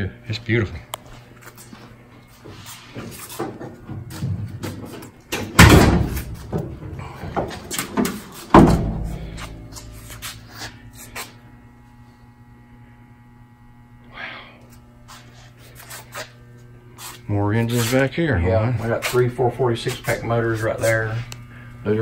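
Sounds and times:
faint multi-tone hum: 0.0 - 22.0
door or lid slamming: 5.3 - 6.6, 7.9 - 9.1.

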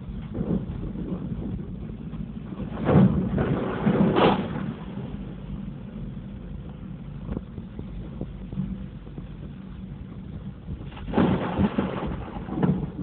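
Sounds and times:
steady low rush: 0.0 - 11.1
tyres splashing through floodwater: 2.6 - 5.2, 10.9 - 13.0.

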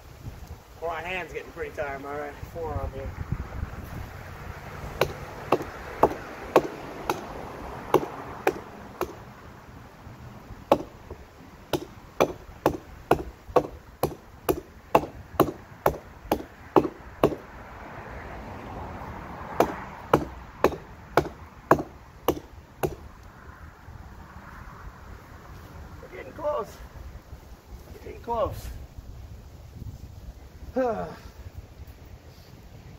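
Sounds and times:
hatchet chopping wood: 4.9 - 9.3, 10.7 - 17.5, 19.5 - 23.1.

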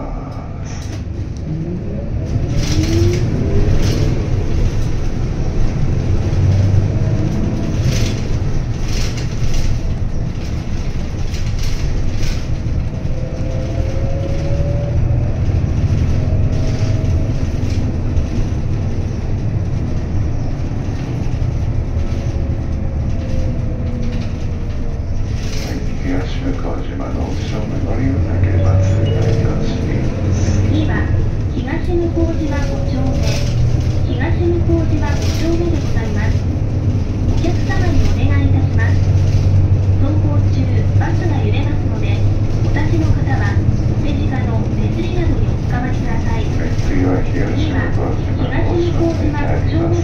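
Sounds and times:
bus engine and road rumble: 0.0 - 50.0
bus whine rising and falling: 0.0 - 50.0
interior rattles: 2.2 - 50.0.

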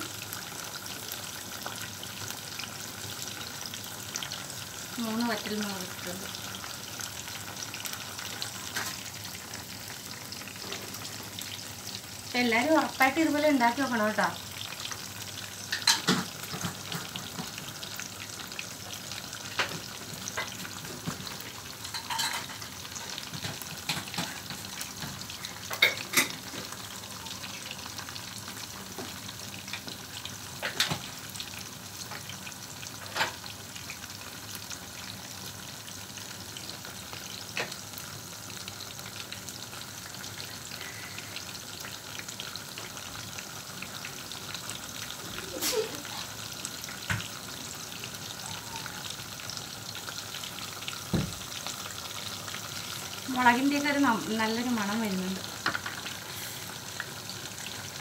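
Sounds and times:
chicken sizzling in hot oil: 0.0 - 58.0
oil popping and crackling: 15.6 - 31.2, 41.8 - 58.0.

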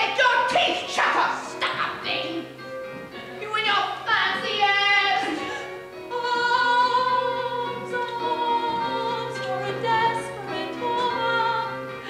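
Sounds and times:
stage musical music: 0.0 - 12.0.

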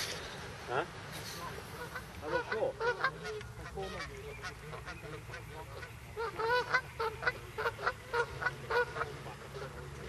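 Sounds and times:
waterfowl honking: 0.7 - 10.0.

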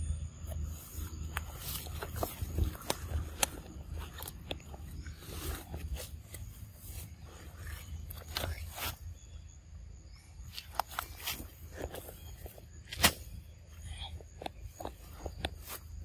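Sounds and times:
monkey crunching and tearing fruit: 0.5 - 9.0.

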